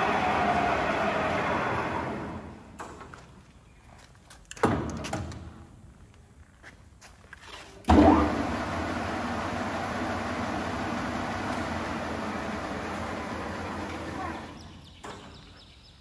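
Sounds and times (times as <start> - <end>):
lathe running: 0.0 - 2.6, 7.9 - 14.6.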